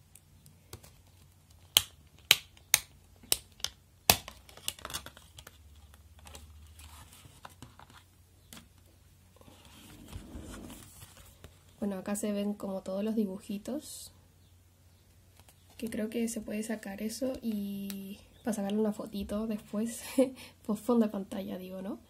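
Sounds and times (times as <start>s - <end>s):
plastic clicks of cd case: 0.7s - 6.5s.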